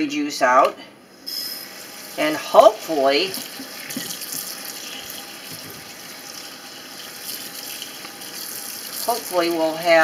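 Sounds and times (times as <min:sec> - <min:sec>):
faucet running into a sink: 0:01.3 - 0:10.0.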